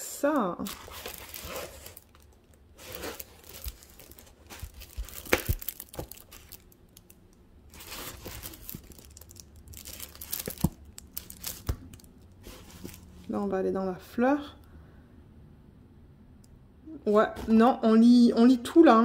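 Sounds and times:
plastic film crinkling: 0.4s - 13.3s.

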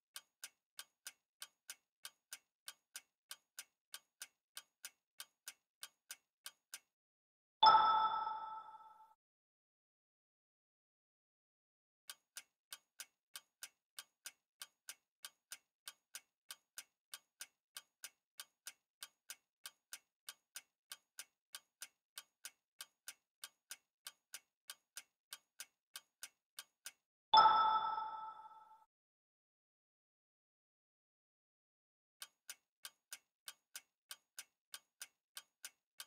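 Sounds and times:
clock-like ticking: 0.1s - 6.9s, 12.1s - 28.7s, 32.2s - 35.8s.

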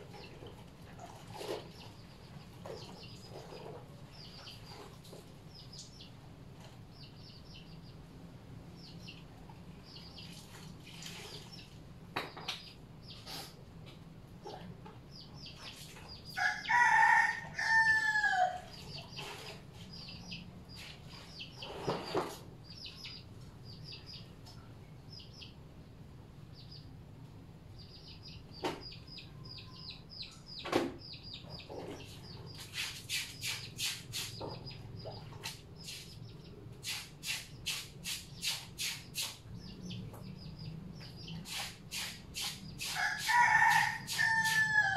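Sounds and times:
rooster crowing: 16.4s - 18.7s, 43.0s - 44.9s
scrubbing clothes: 32.6s - 34.3s, 41.4s - 44.7s.

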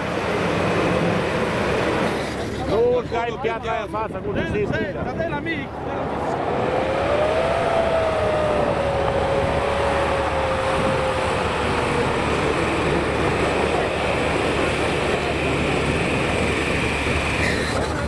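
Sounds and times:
steady rushing noise: 0.0s - 18.0s
engine working under load: 5.0s - 18.0s
whine falling in pitch: 5.5s - 15.0s.

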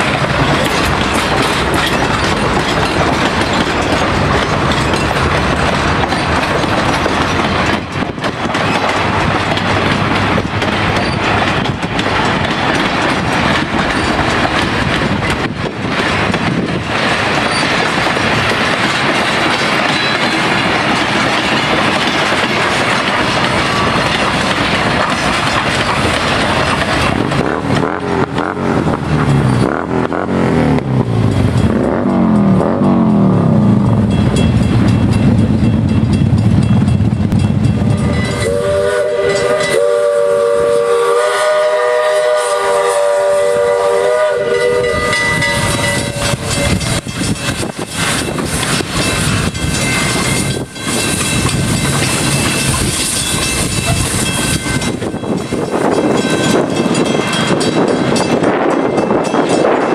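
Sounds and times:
steam locomotive rumbling: 0.0s - 59.9s
train wheels clattering over rail joints: 0.0s - 59.9s
steam whistle chord: 37.9s - 46.7s.

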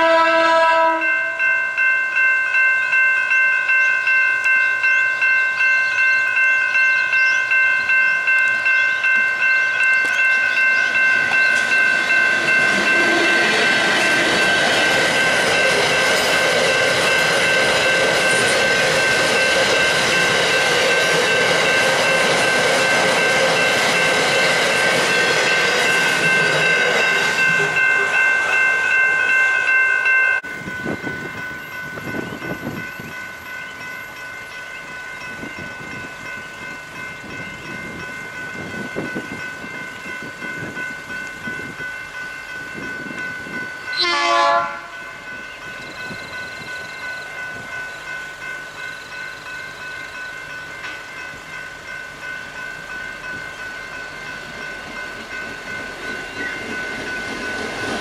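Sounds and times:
locomotive horn blast: 0.0s - 1.4s, 43.9s - 45.0s
approaching locomotive: 0.0s - 58.0s
level crossing warning bells: 0.0s - 58.0s.

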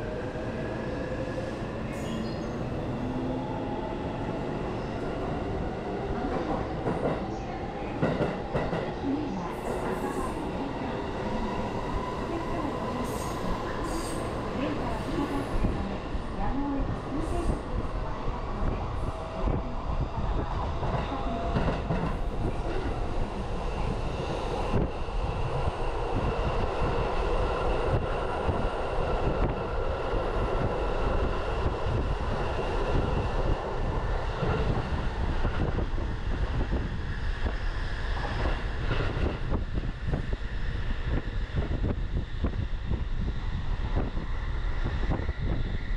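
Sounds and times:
train wheels rumbling on track: 0.0s - 45.9s.

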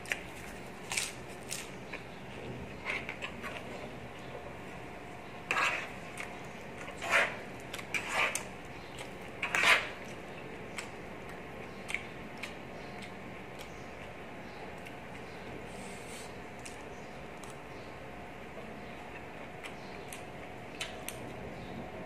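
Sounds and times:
cutlery scraping a plate: 5.5s - 6.0s, 6.8s - 8.5s, 9.4s - 10.0s.

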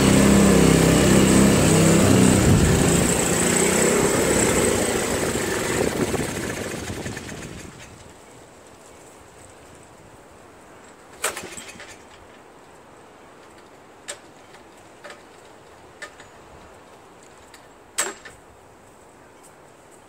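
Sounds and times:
short rattle: 10.8s - 12.4s.

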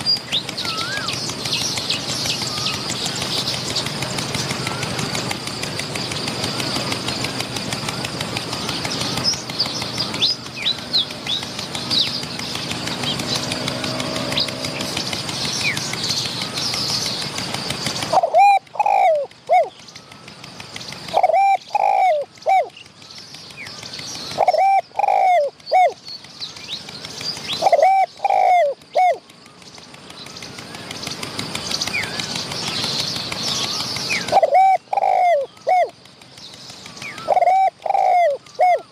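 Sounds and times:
small birds twittering: 0.0s - 38.9s
steady hum: 0.0s - 38.9s
dove cooing: 18.0s - 19.8s, 21.0s - 22.8s, 24.3s - 26.0s, 27.6s - 29.2s, 34.0s - 36.0s, 37.0s - 38.9s.

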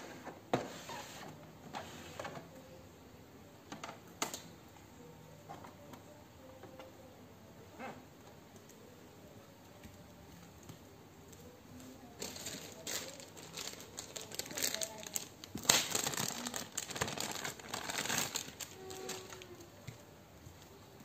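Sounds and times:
plastic bag crinkling: 12.1s - 19.7s.

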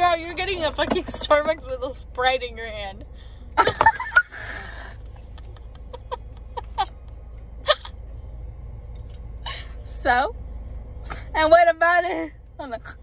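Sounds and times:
low steady hum: 0.0s - 13.0s
woman laughing: 3.6s - 4.5s, 5.2s - 6.9s, 7.6s - 8.0s.

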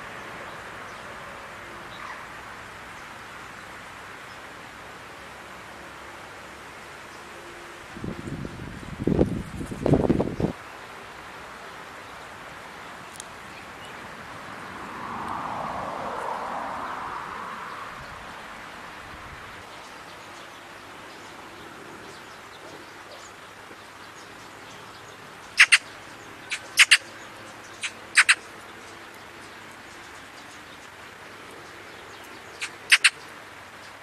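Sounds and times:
steady outdoor hiss: 0.0s - 34.0s
magpie chattering calls: 25.6s - 27.1s, 27.7s - 28.5s, 32.6s - 33.2s.

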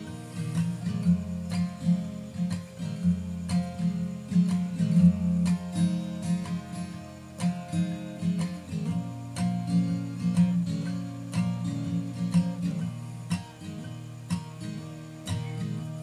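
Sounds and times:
acoustic guitar strummed and picked: 0.0s - 16.0s.

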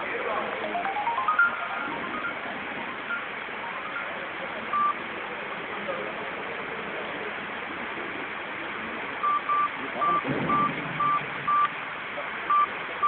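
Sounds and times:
background hubbub: 0.0s - 13.0s
short electronic beeps: 4.7s - 5.0s, 9.2s - 11.7s, 12.5s - 12.7s.

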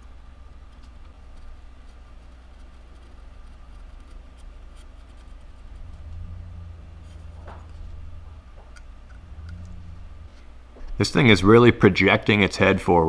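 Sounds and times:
low hum: 0.0s - 13.0s
knife scraping wood: 0.7s - 6.4s.

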